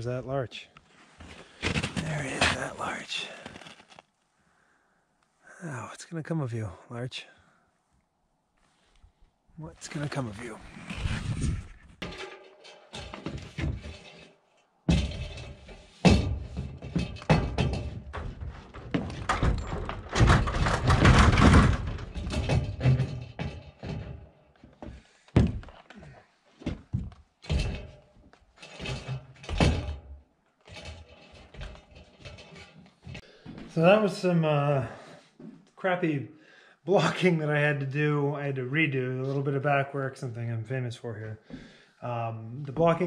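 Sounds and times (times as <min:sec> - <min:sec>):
carpentry knocks and thuds: 0:14.9 - 0:24.2, 0:24.8 - 0:25.8, 0:28.8 - 0:31.8.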